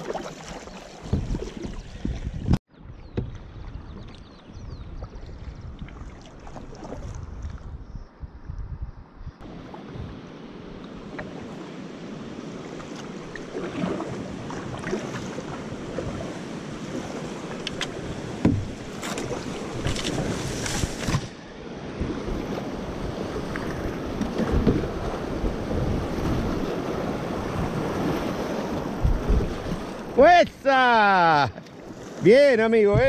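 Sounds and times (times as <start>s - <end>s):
paddle strokes splashing: 0.0s - 2.3s, 5.0s - 7.6s, 9.4s - 33.0s
running water: 0.0s - 2.6s.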